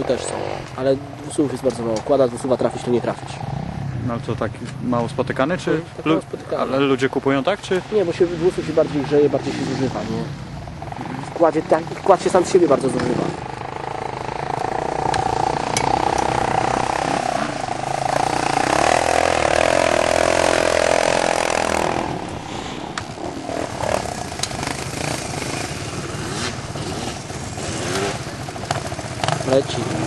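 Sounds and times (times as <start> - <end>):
dirt bike engine running: 9.0 - 30.0.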